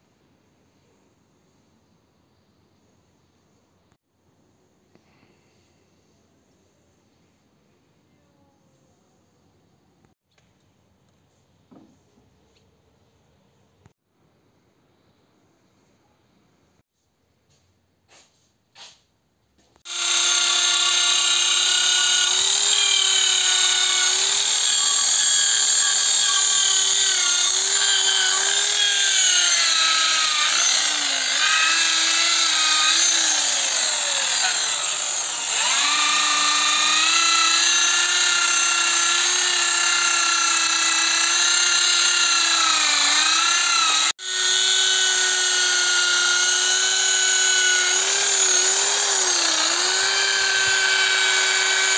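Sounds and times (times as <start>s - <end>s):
electric drill wire wheel on metal: 19.9s - 51.9s.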